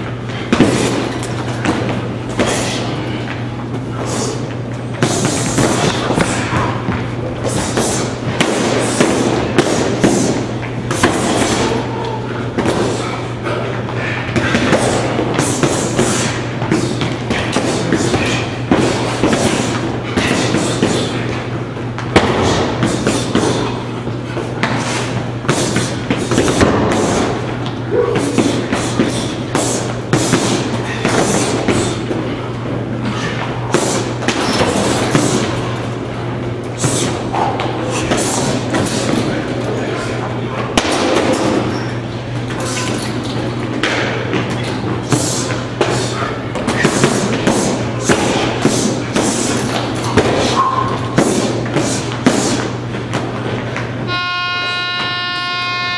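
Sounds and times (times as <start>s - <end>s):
punches and kicks on punching bags: 0.4s - 3.2s, 4.0s - 13.2s, 14.3s - 21.4s, 22.0s - 32.4s, 33.2s - 35.8s, 40.7s - 41.8s, 42.5s - 53.3s.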